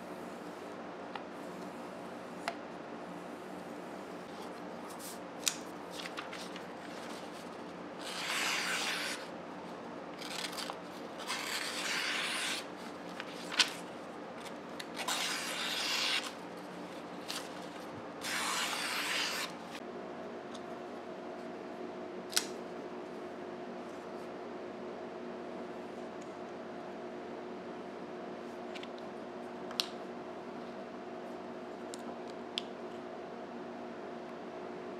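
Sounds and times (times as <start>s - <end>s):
knife slicing paper: 6.0s - 9.3s, 10.2s - 16.4s, 17.2s - 19.8s.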